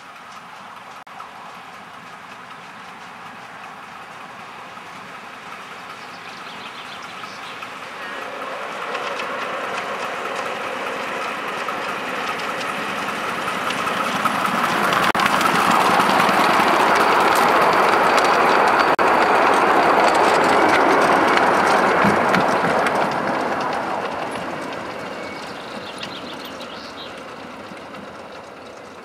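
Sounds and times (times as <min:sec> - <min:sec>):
miniature steam locomotive running: 0:00.0 - 0:29.0.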